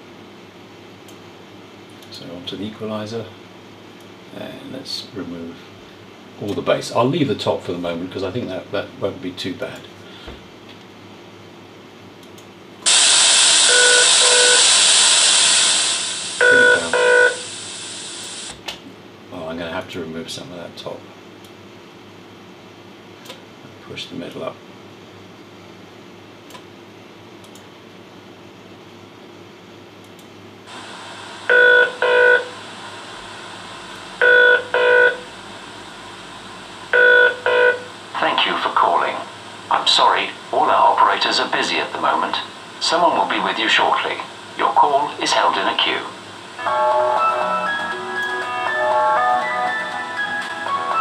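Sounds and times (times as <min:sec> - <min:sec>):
loud white noise hiss: 0:00.0 - 0:21.3, 0:29.1 - 0:51.0
telephone ringing tone: 0:13.7 - 0:14.6, 0:16.4 - 0:17.4, 0:31.5 - 0:32.5, 0:34.2 - 0:35.2, 0:37.0 - 0:37.8, 0:46.6 - 0:51.0.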